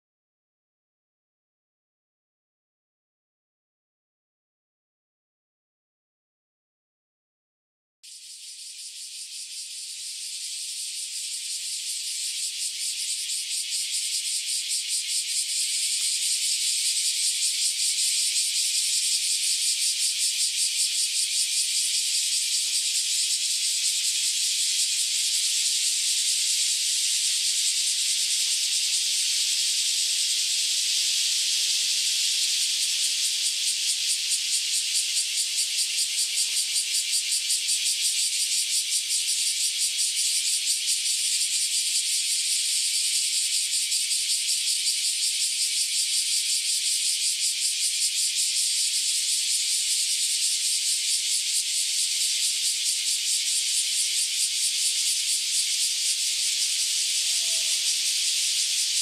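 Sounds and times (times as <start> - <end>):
cicadas buzzing: 8.0 - 59.0.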